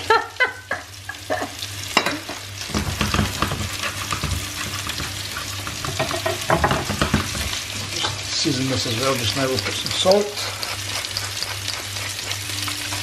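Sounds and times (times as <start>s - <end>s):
mushrooms sizzling in a pan: 0.0s - 13.0s
spatula scraping a plate: 2.9s - 8.2s, 8.9s - 13.0s.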